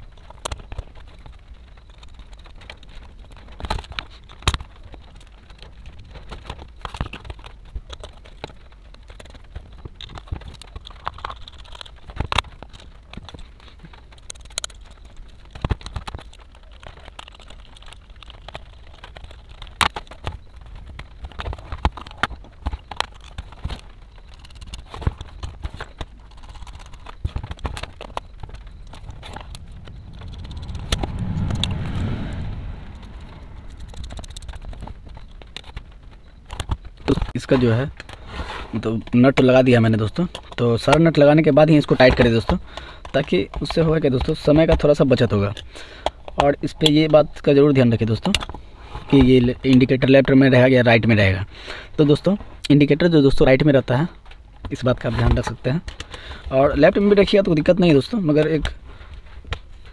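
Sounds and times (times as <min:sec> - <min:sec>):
low handling rumble: 0:27.8 - 0:36.2.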